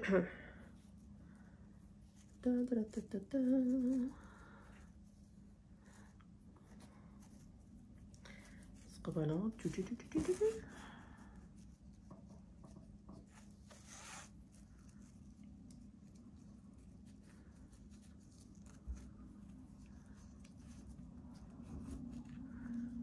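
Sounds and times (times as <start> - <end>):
ribbon rustling and clicking: 6.1 - 23.0.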